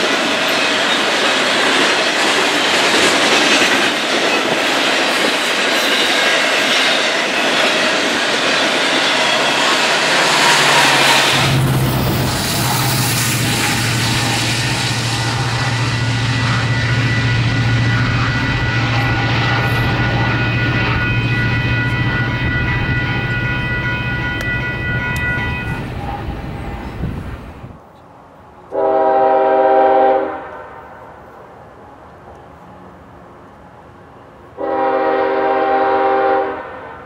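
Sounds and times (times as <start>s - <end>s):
train wheels rolling: 0.0s - 27.8s
high ringing tones: 8.8s - 27.2s
low engine drone: 9.0s - 23.3s
distant locomotive horn: 9.1s - 27.6s, 28.7s - 31.4s, 34.6s - 37.0s.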